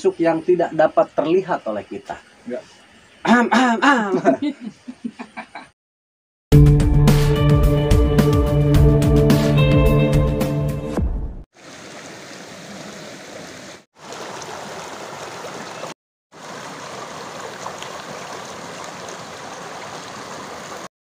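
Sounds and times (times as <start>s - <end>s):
water rushing over boulders: 11.6s - 20.9s.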